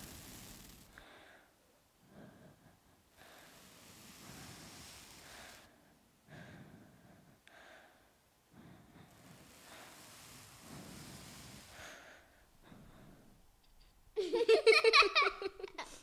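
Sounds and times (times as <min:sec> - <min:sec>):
fingers scratching scalp and hair: 0:00.0 - 0:01.0, 0:03.2 - 0:05.7, 0:09.1 - 0:12.1.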